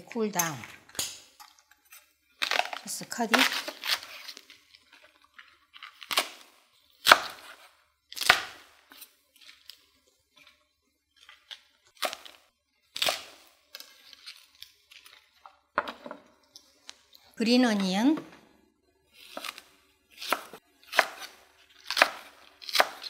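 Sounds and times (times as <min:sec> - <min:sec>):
knife chopping cabbage on wooden board: 0:07.0 - 0:07.6, 0:19.2 - 0:19.6, 0:20.2 - 0:23.0.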